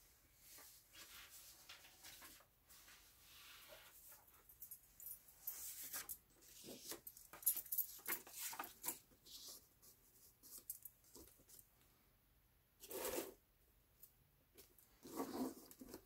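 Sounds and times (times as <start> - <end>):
paper and cardboard rustling: 7.9 - 9.7.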